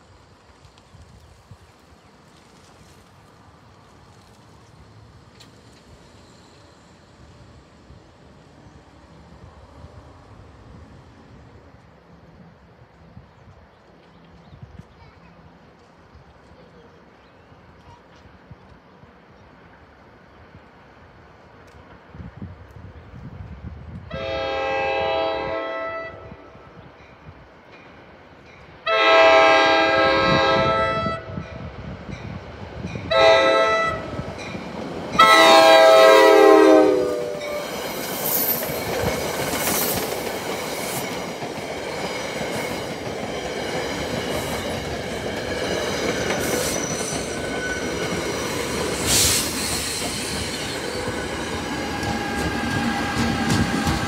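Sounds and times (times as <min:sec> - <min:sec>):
train horn blasts: 0:24.1 - 0:26.6, 0:28.8 - 0:31.4, 0:33.1 - 0:34.2, 0:35.2 - 0:37.7
train wheels clattering over rails: 0:37.3 - 0:54.0.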